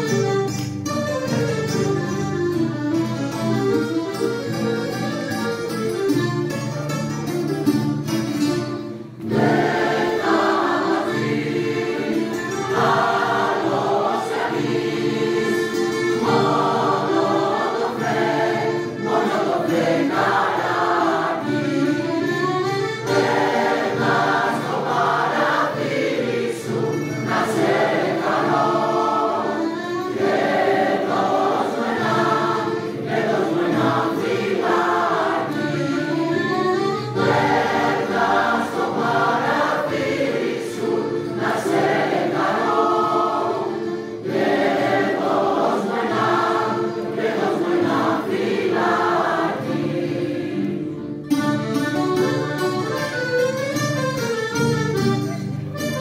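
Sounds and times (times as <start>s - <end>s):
mandolin orchestra playing: 0.0s - 56.0s
mixed choir singing: 9.2s - 22.4s, 23.0s - 51.3s.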